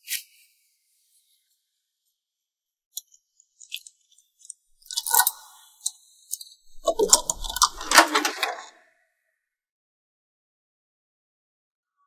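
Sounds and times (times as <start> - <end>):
door handle and latch clattering: 6.7 - 8.7
keys jingling in door lock: 6.7 - 8.7.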